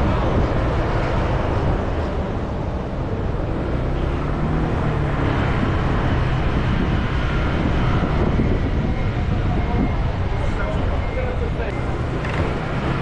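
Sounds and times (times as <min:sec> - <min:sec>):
motorcycle engine rumbling: 0:11.7 - 0:13.0.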